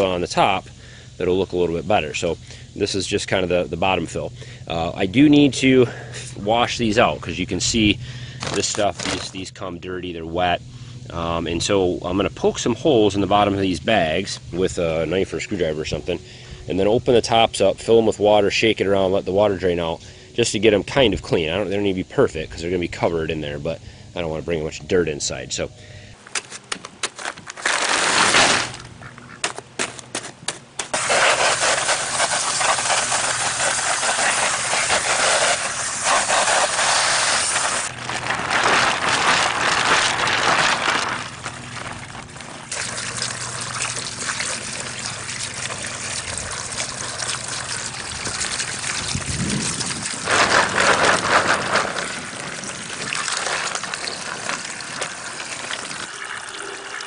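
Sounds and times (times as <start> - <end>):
garden hose running water: 0.0 - 24.4, 26.2 - 29.4, 30.8 - 57.0
plastic bags of pebbles crackling: 8.4 - 9.4, 26.9 - 28.9, 32.6 - 46.5, 47.7 - 56.1
water spraying onto paving stones: 30.9 - 57.0.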